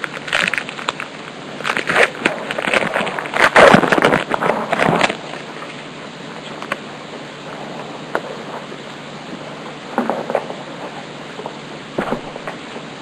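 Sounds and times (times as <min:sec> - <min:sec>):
wrapper crinkling and tearing: 0:00.0 - 0:05.5
steady background hiss: 0:00.0 - 0:13.0.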